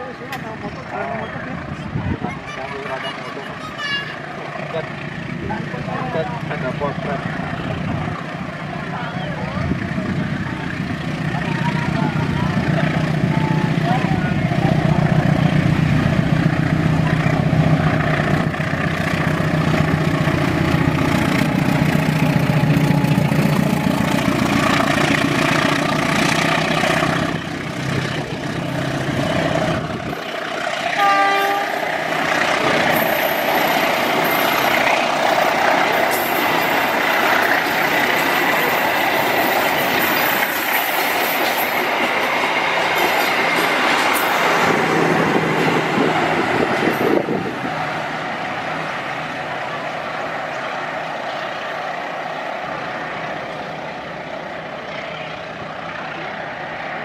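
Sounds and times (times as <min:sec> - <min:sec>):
locomotive engine drone: 0:00.0 - 0:57.0
train wheels clattering over rails: 0:14.8 - 0:51.7
train horn: 0:30.9 - 0:31.8.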